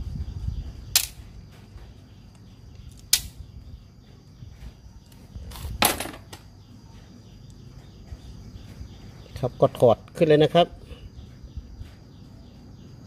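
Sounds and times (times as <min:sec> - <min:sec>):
sharp click: 0:00.9 - 0:01.2, 0:02.9 - 0:03.4.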